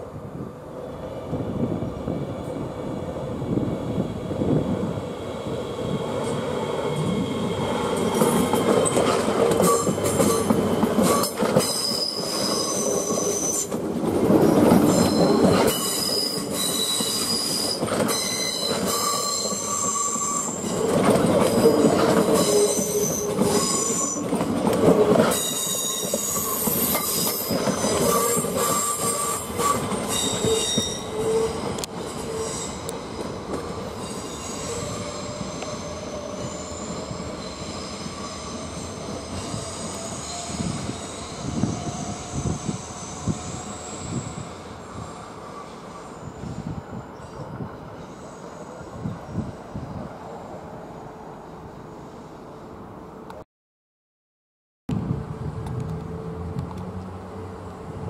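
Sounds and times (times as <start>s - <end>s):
wheels rumbling on rails: 1.2s - 47.8s, 54.9s - 58.0s
train wheels squealing: 6.2s - 13.8s, 14.4s - 52.4s
wheels clacking over rail joints: 7.7s - 20.0s, 20.6s - 32.0s.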